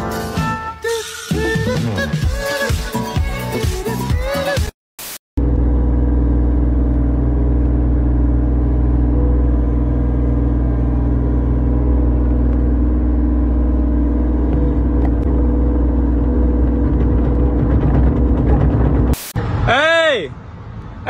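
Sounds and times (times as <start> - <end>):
excavator diesel engine running: 5.4 - 19.2.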